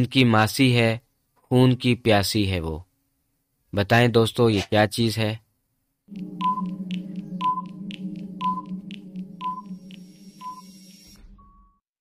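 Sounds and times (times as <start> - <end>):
clock-like ticks: 6.1 - 11.2
low drone: 6.1 - 11.5
brief single tone: 6.1 - 11.8
short beeps: 6.1 - 11.8.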